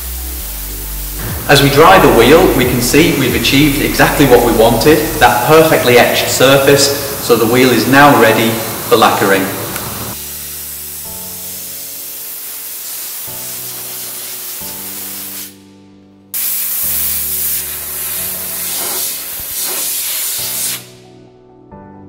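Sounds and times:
compressed air blow gun hissing: 0.0 - 15.7, 16.4 - 21.0.

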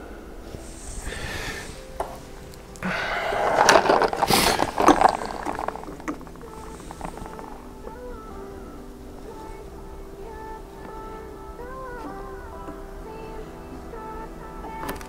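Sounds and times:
plastic miniatures rustling and scraping: 3.4 - 7.6.

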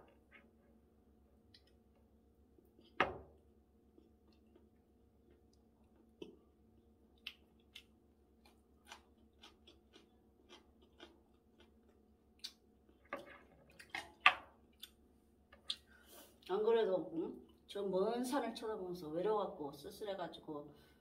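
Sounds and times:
chewing food: 3.9 - 13.1.

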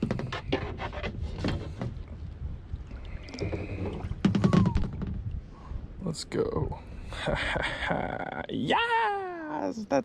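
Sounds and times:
knocks and clatter in kayak: 0.0 - 2.4, 3.2 - 5.4
wind and water on hull: 0.0 - 10.0.

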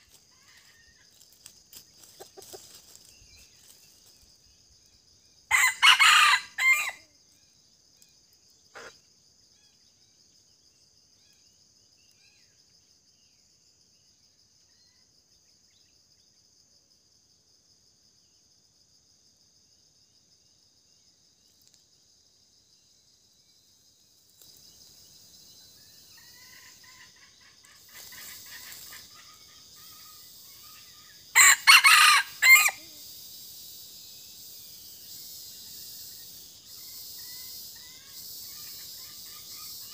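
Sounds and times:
high insect drone: 0.0 - 39.9
rooster crowing: 5.5 - 7.0, 31.3 - 32.9.

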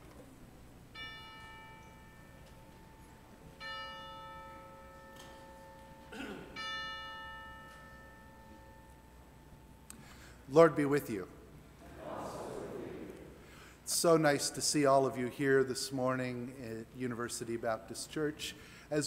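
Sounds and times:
bell-like chime ringing: 0.9 - 9.8.

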